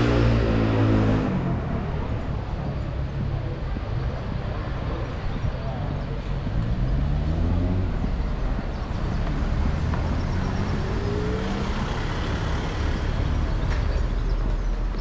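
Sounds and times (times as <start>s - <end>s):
low traffic rumble: 0.0s - 15.0s
car engine pulling away: 6.2s - 14.6s.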